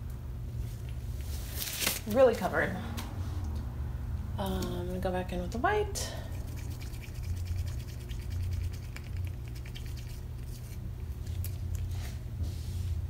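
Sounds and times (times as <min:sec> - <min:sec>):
low room hum: 0:00.0 - 0:13.0
stick stirring resin in cup: 0:06.3 - 0:11.2.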